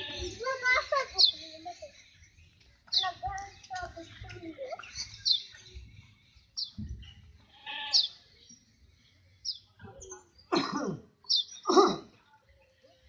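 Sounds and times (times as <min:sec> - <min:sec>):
goat bleating: 0:07.5 - 0:08.1.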